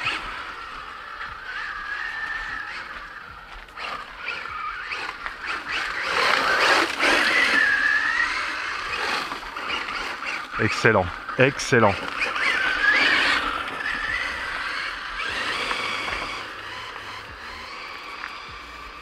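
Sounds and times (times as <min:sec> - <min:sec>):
electric motor whining: 0:00.0 - 0:19.0
tyres crunching on gravel: 0:00.0 - 0:19.0.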